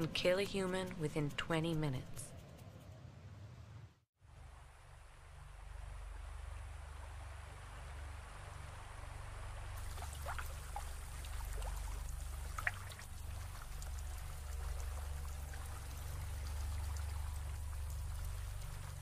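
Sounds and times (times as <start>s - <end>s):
low rumble: 4.4s - 19.0s
water trickling: 9.3s - 19.0s.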